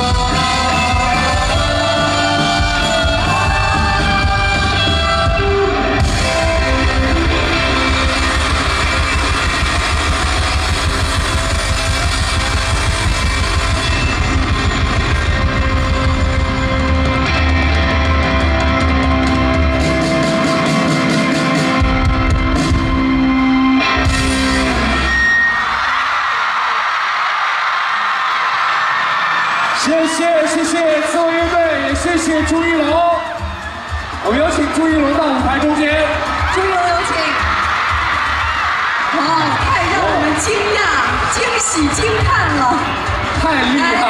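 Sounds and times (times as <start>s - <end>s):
audience cheering: 0.0s - 21.9s, 23.8s - 44.0s
bass guitar: 0.0s - 25.4s
drum kit: 0.0s - 25.9s, 30.6s - 44.0s
electric guitars: 0.0s - 26.0s.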